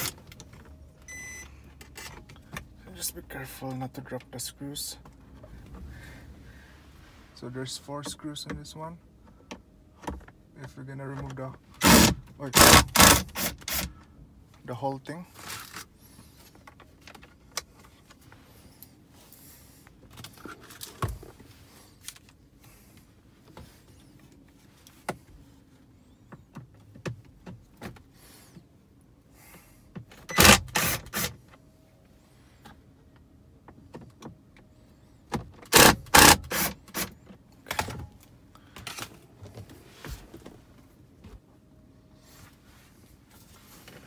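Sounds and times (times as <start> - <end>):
power screwdriver whirring: 11.8 - 13.9, 30.3 - 31.3, 35.7 - 37.1.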